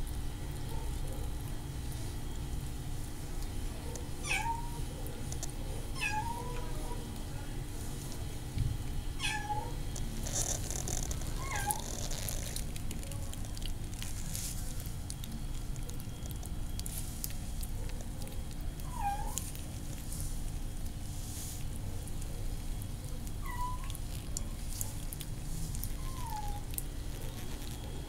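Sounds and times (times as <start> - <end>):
kitten meowing: 4.2 - 4.8, 6.0 - 6.6, 9.2 - 9.8, 11.4 - 12.3, 18.8 - 19.5, 23.4 - 24.0, 25.9 - 26.8.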